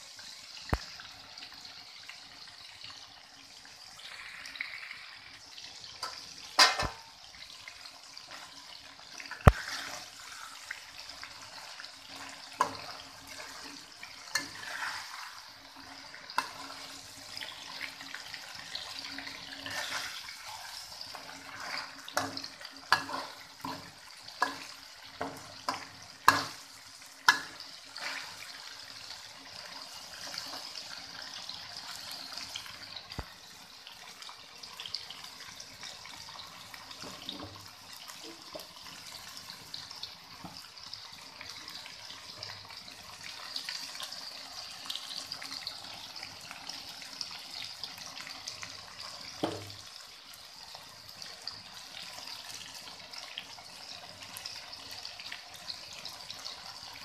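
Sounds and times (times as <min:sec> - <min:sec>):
sauce simmering with hiss: 0:00.0 - 0:57.0
metal spatula scraping pan: 0:06.0 - 0:07.0, 0:09.5 - 0:10.6, 0:12.2 - 0:15.5, 0:19.5 - 0:26.6.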